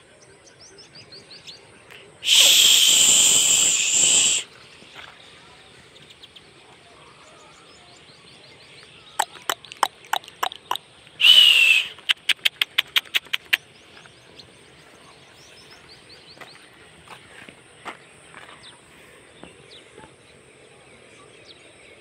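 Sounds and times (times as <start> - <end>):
faint bird chirps: 0.0 - 16.8
hissing burst with whistle: 2.2 - 4.6, 11.2 - 12.0
sharp clicks: 9.2 - 10.8, 11.4 - 13.6.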